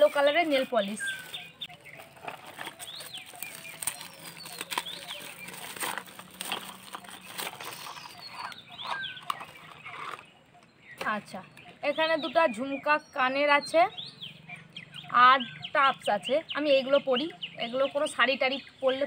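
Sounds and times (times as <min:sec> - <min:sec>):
wrapping paper crinkling and tearing: 0:00.0 - 0:10.2
birds calling: 0:00.0 - 0:19.0.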